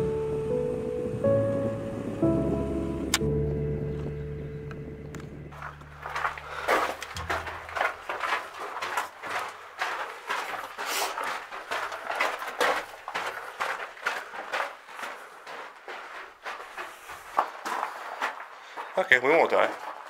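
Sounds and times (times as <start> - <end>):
footsteps on gravel: 5.5 - 20.0.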